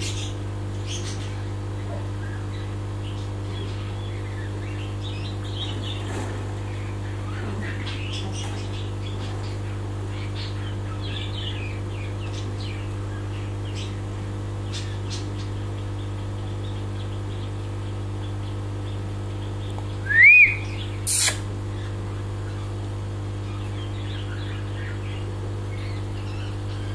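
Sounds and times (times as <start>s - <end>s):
small birds chirping: 0.0s - 26.9s
steady low hum: 0.0s - 26.9s
rising-and-falling bird call: 20.0s - 21.4s
harsh squawk: 20.1s - 21.5s.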